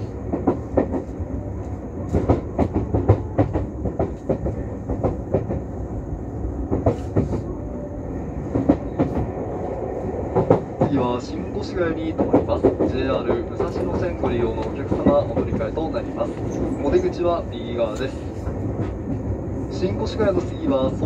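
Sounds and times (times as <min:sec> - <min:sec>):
train interior rumble: 0:00.0 - 0:21.0.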